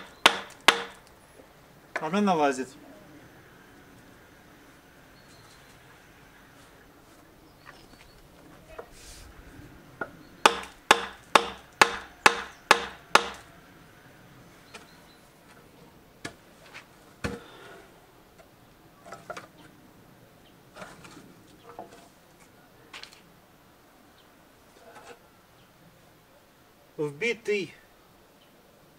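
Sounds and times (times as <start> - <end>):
hammer knocking wooden handle: 0.0 - 1.0, 10.5 - 13.4.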